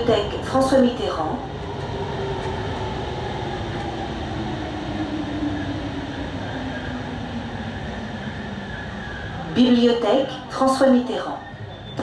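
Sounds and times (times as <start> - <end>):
train running noise: 0.0 - 12.0.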